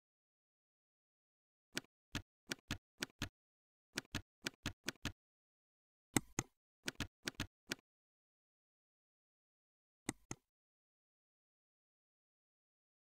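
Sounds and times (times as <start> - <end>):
keyboard keys clicking: 1.8 - 3.3, 4.0 - 5.2, 6.2 - 7.8.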